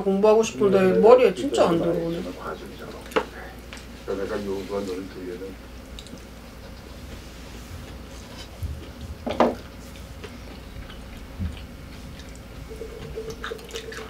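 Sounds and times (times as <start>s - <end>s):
person chewing food: 5.8s - 7.2s, 7.8s - 14.0s.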